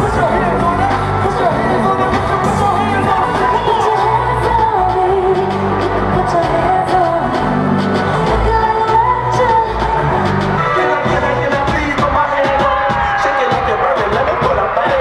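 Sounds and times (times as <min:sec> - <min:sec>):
woman singing into microphone: 0:00.0 - 0:11.3
pop backing track with beat: 0:00.0 - 0:15.0.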